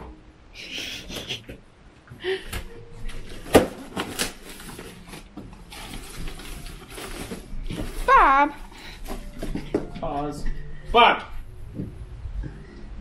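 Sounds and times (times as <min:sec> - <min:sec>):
cardboard rustling and scraping: 0:03.1 - 0:09.8.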